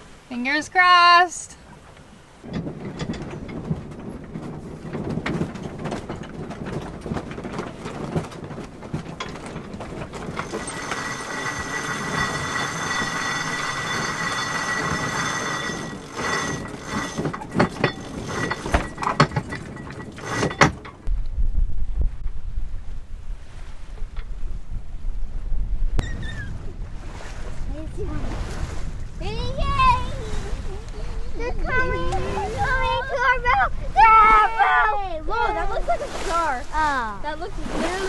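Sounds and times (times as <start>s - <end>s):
winch whirring with ringing tone: 1.8s - 21.1s
winch ratcheting clicks: 2.5s - 21.1s.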